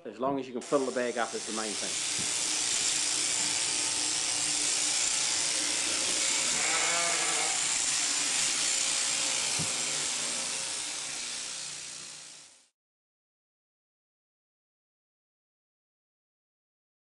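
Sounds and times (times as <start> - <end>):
electric shearing handpiece running: 0.6 - 12.7
sheep bleating: 6.4 - 7.7.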